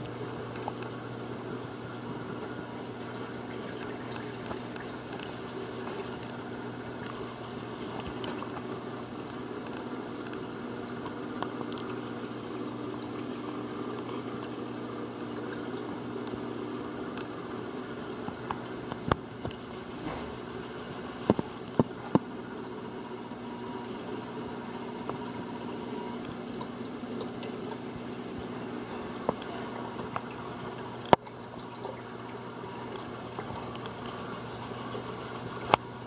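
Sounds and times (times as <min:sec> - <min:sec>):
aquarium pump hum and water: 0:00.0 - 0:36.0.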